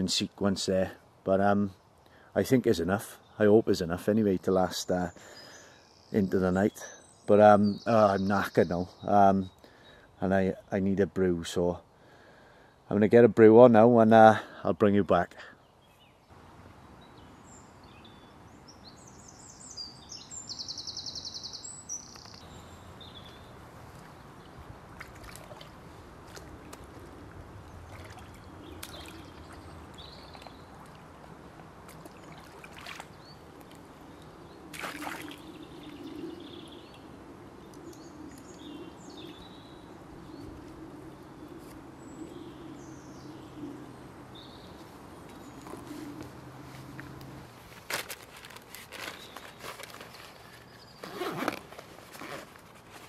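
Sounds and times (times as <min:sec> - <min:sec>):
birds singing: 0:00.0 - 0:47.2, 0:48.4 - 0:53.0
water splashes: 0:24.4 - 0:33.8, 0:34.7 - 0:35.5.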